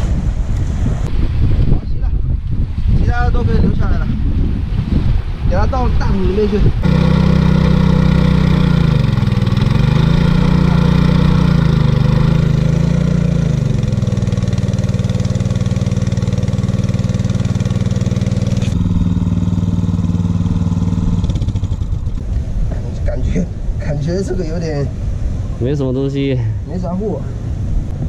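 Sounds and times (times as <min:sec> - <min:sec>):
small petrol water pump engine: 0:06.8 - 0:22.2.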